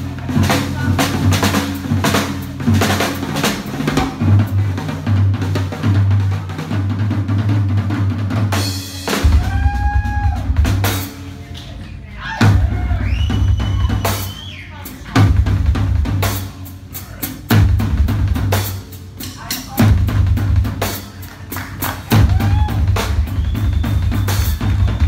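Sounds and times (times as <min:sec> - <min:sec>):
bass line: 0:00.0 - 0:25.0
rock music: 0:00.0 - 0:25.0
drum kit fast strokes: 0:12.4 - 0:25.0.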